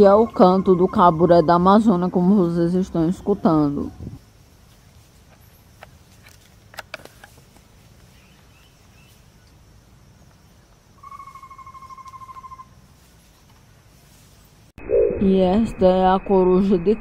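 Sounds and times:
owl trill of whistled notes: 11.0s - 12.7s.

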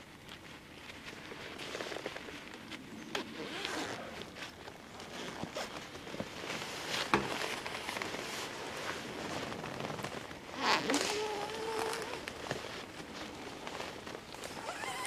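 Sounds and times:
nylon fabric rustling: 0.4s - 15.0s.

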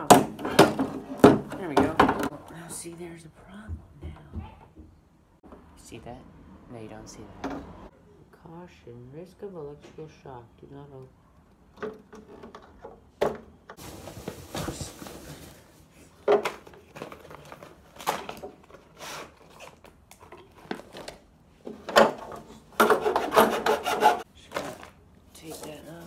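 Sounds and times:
hand tools scraping plastic casing: 22.1s - 24.9s.

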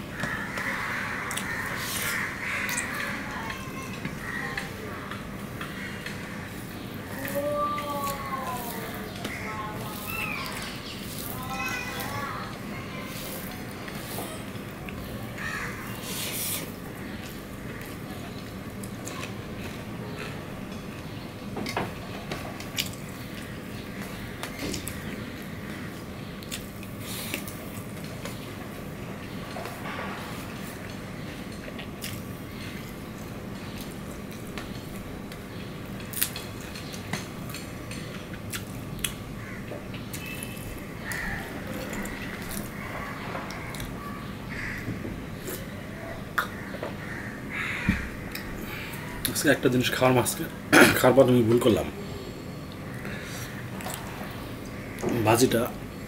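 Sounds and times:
chewing: 22.6s - 23.5s, 36.0s - 39.2s, 52.7s - 54.8s.

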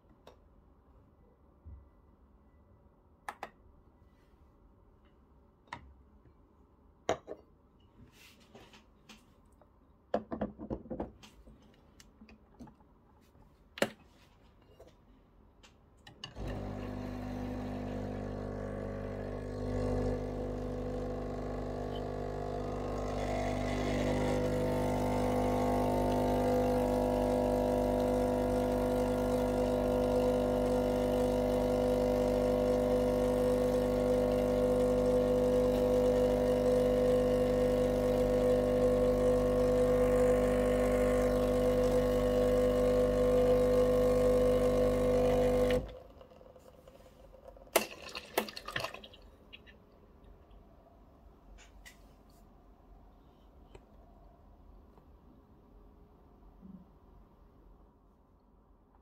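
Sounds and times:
espresso machine pump humming: 16.4s - 46.3s.

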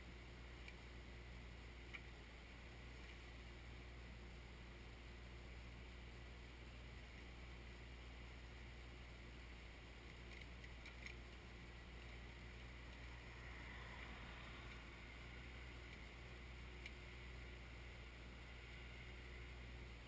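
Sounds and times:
tractor diesel engine humming: 0.0s - 20.0s
car passing: 12.6s - 16.6s
faint clicks: 15.8s - 16.2s, 16.8s - 17.0s.

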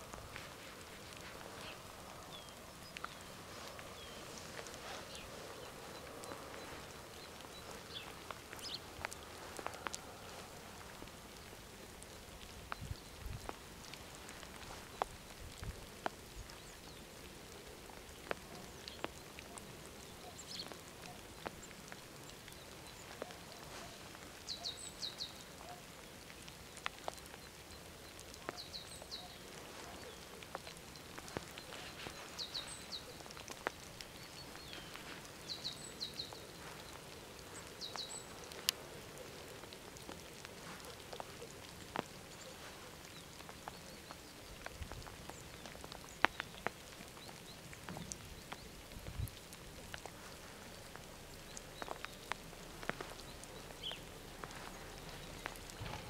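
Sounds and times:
water drips tapping: 0.0s - 56.0s.

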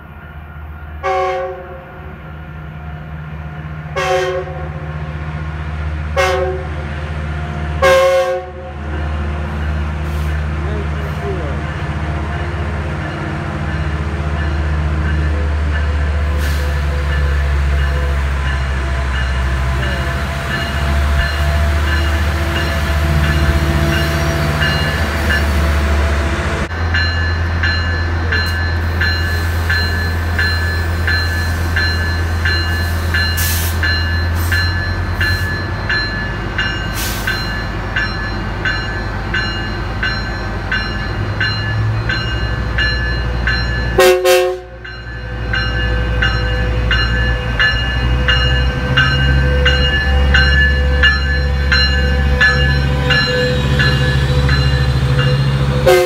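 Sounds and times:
locomotive engine drone: 0.0s - 56.0s
bell ringing: 26.8s - 44.2s, 44.8s - 55.7s.

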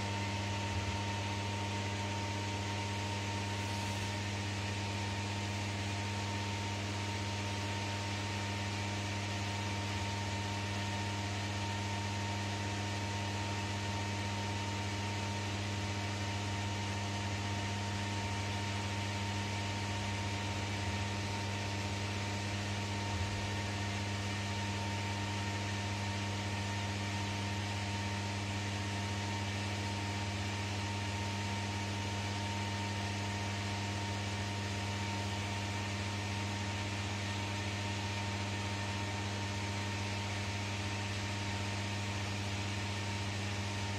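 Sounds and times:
electrical hum: 0.0s - 43.9s
fan-like hiss: 2.8s - 5.8s.

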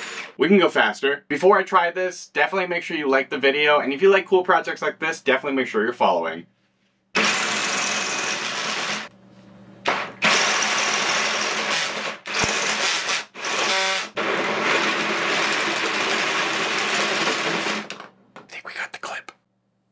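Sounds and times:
cordless drill running: 0.0s - 0.4s, 7.2s - 9.1s, 10.2s - 17.9s.

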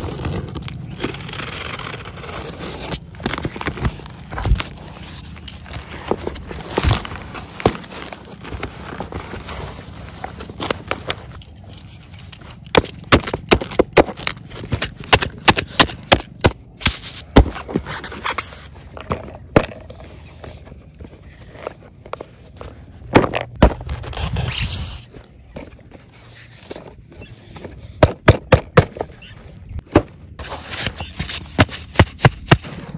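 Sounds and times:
foam packing sheets rustling: 0.0s - 16.1s
cardboard scraping: 0.0s - 28.0s, 28.9s - 32.9s.

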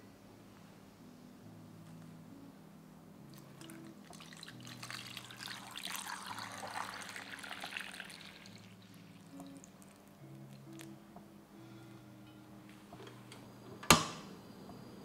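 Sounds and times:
water pouring into a pot: 3.6s - 10.1s.

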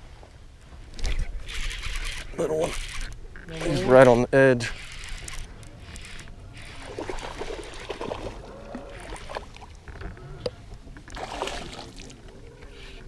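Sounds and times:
water lapping against boat: 4.9s - 13.0s.

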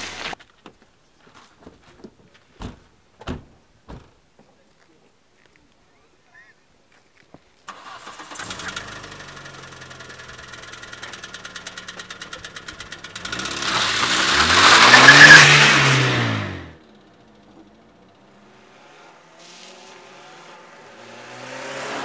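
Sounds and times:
car engine starting and revving: 7.7s - 22.0s.

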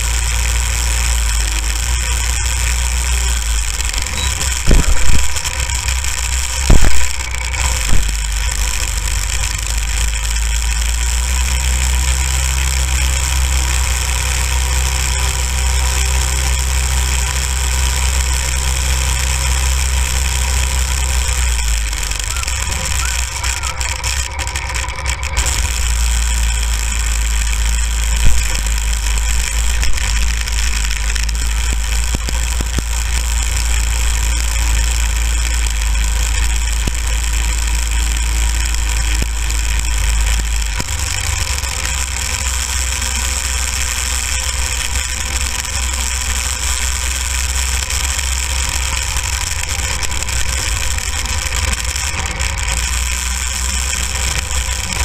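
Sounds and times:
go-kart engine running: 0.0s - 55.0s.

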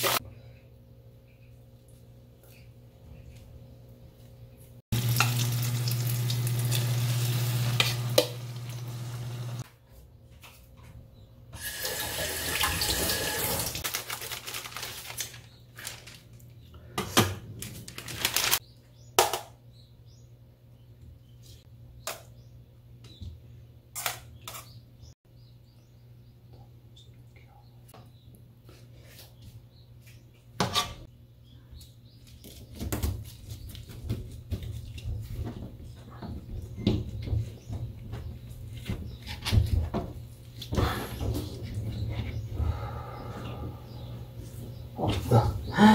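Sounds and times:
egg and onion sizzling: 4.9s - 9.6s.

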